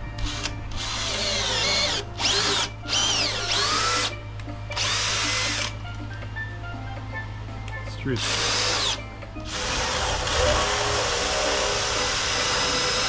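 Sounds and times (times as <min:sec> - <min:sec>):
power drill boring into wood: 0:00.2 - 0:04.1, 0:04.8 - 0:05.7, 0:08.2 - 0:13.0.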